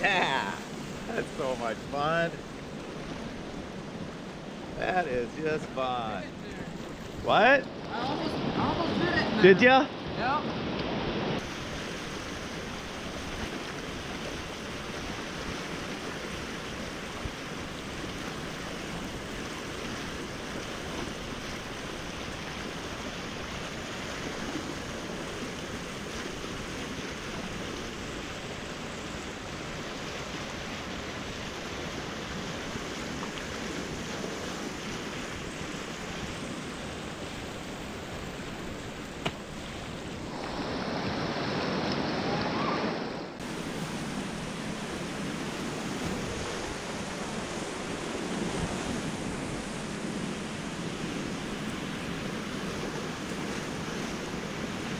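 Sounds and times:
rushing river water: 0.0 - 54.9
water splashing off kayak bow: 43.4 - 54.9.

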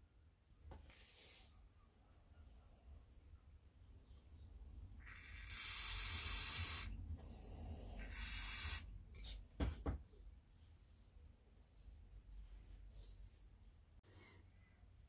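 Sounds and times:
aerosol spray hissing: 5.1 - 6.9, 8.0 - 8.9.

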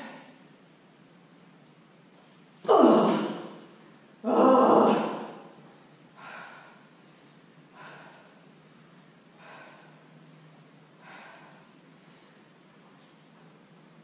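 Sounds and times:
woman breathing: 5.0 - 12.7.

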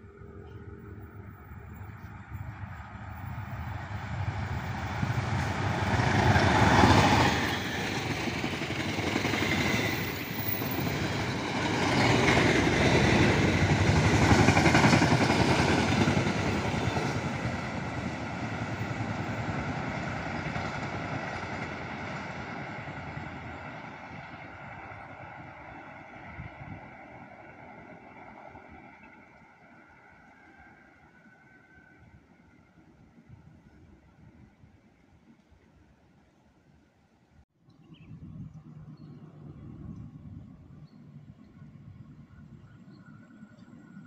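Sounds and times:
diesel locomotive passing: 0.0 - 34.2.

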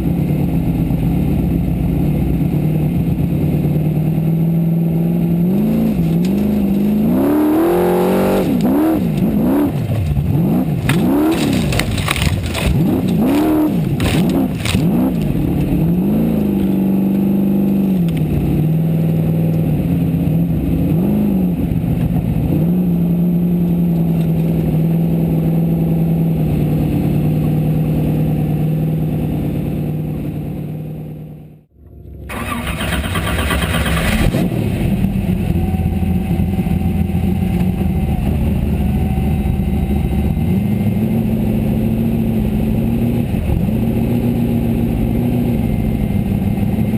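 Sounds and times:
racing engine revving: 0.0 - 37.0
chassis knocks and clatter: 10.8 - 15.3.

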